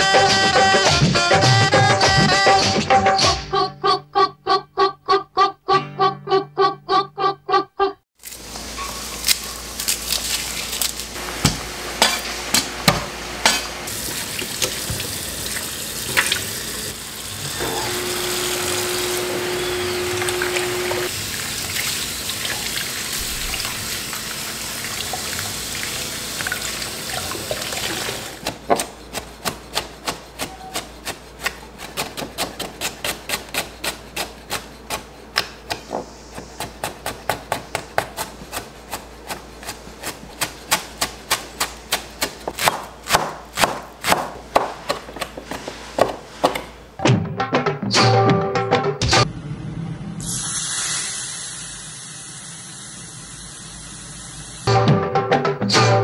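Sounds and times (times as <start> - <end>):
hands rinsing peppers: 8.2 - 11.2, 13.9 - 17.6, 20.2 - 28.4
knife chopping on wooden board: 28.4 - 46.7.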